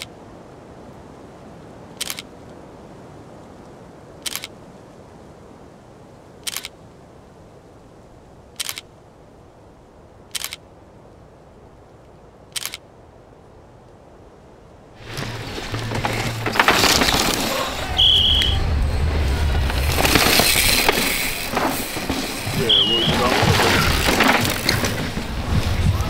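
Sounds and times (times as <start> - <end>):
camera shutter clicks: 2.0 - 2.3, 4.2 - 4.5, 6.4 - 6.8, 8.6 - 8.9, 10.3 - 10.6, 12.5 - 12.8.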